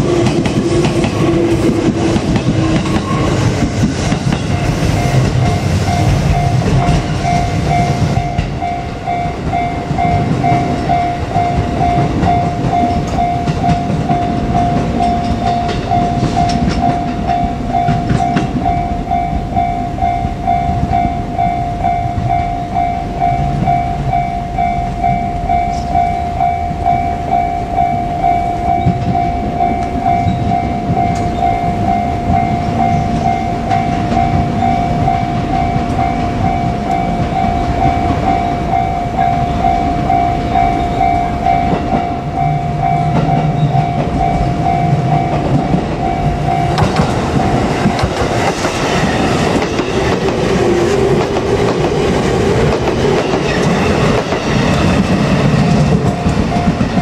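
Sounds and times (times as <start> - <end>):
train rumbling on rails: 0.0 - 57.0
level crossing bell ringing: 4.5 - 48.0.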